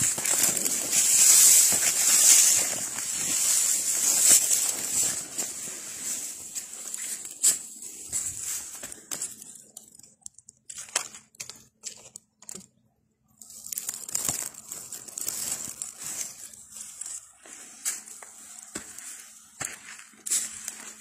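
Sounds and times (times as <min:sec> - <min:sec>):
dry leaves crackling and rustling: 0:00.0 - 0:12.6, 0:13.4 - 0:21.0
twigs snapping: 0:00.0 - 0:12.7, 0:13.4 - 0:16.3.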